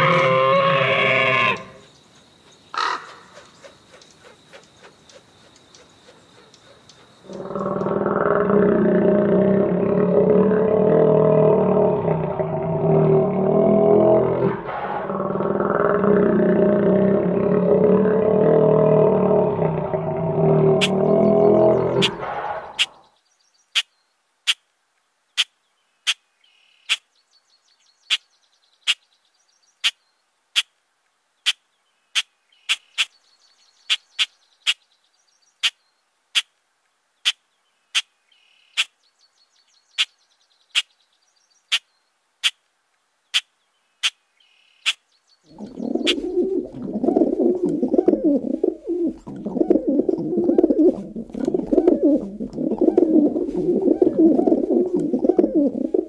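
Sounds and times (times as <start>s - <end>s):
faint bird-like chirps: 43.3s - 48.0s
dense low sound: 45.5s - 55.9s.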